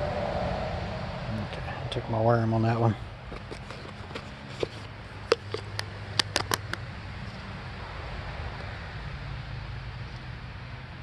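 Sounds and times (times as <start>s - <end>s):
low background rumble: 0.0s - 11.0s
sharp handling clicks and taps: 3.3s - 6.8s.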